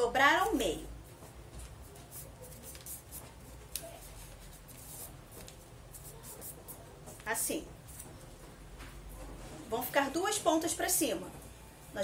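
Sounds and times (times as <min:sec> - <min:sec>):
paper rustling and crinkling: 0:01.3 - 0:06.8.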